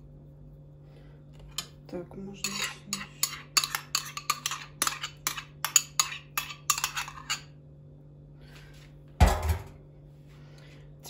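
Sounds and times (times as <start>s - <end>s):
metal spoon scraping a bowl: 1.4s - 7.6s.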